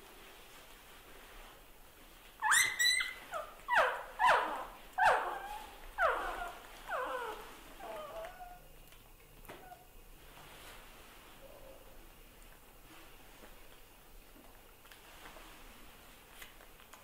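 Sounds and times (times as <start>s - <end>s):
puppy whining: 2.4s - 8.7s, 9.5s - 9.9s.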